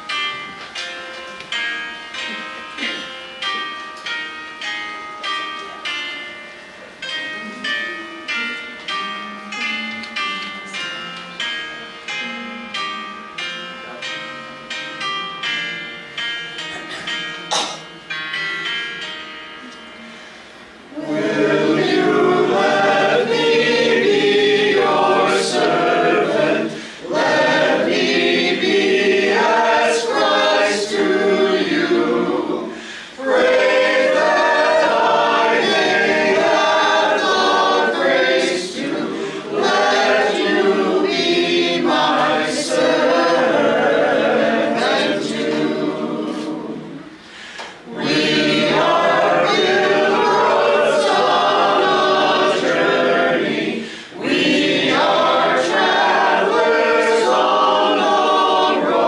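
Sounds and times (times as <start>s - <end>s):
group singing unaccompanied: 20.9s - 59.0s.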